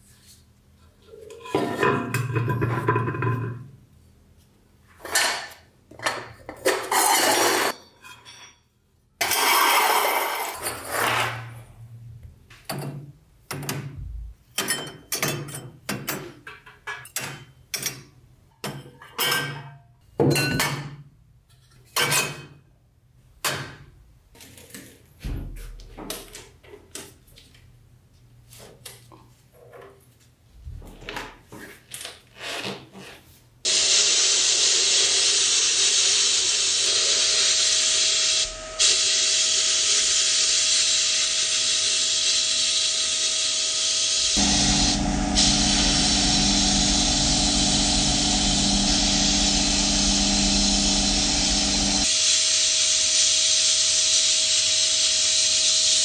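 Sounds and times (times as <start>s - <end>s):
metal scraping and grinding: 6.5s - 8.4s, 9.2s - 11.6s.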